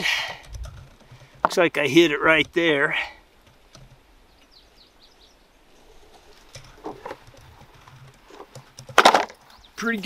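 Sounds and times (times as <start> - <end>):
faint bird chirps: 4.2 - 6.2.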